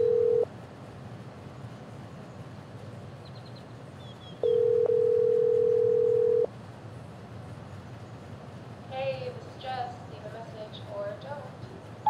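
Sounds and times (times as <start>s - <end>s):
telephone ringback tone: 0.0s - 0.4s, 4.4s - 6.5s.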